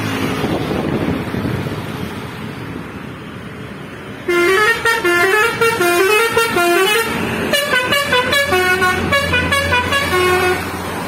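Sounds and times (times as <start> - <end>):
musical bus horn jingle: 4.2 - 10.8.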